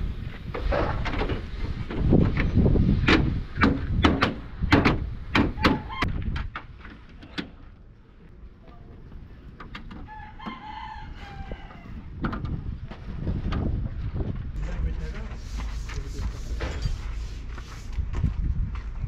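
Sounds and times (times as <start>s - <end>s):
rooster crowing: 10.1s - 12.0s.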